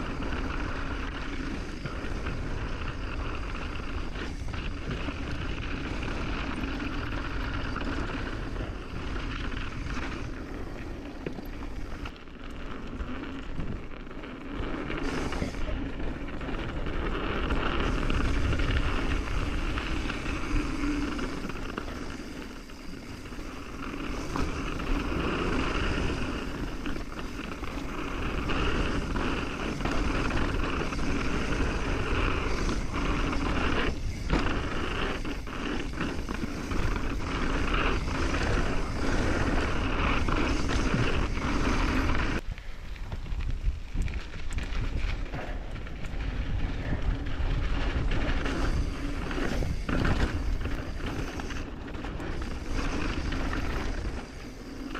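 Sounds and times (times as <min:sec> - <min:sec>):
tyre noise on dirt: 0:00.0 - 0:54.9
wind rushing on microphone: 0:14.6 - 0:54.9.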